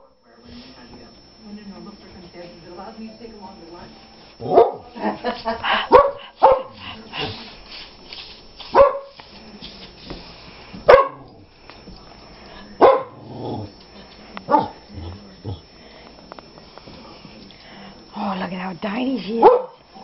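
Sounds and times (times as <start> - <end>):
dog barking: 4.4 - 4.9, 5.9 - 6.8, 8.7 - 9.2, 10.9 - 11.3, 12.8 - 13.2, 14.5 - 14.8, 19.4 - 19.8.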